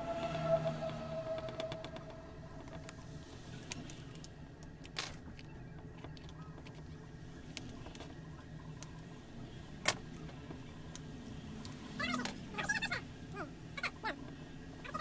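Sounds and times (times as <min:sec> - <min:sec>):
steady low hum: 0:00.0 - 0:04.9.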